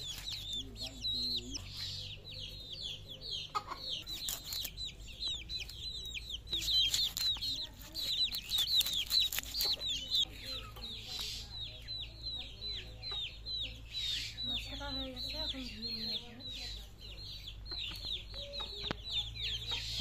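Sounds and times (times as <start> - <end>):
chicks peeping: 0.0 - 20.0
fish being scaled and cut: 4.1 - 4.8, 6.5 - 10.2.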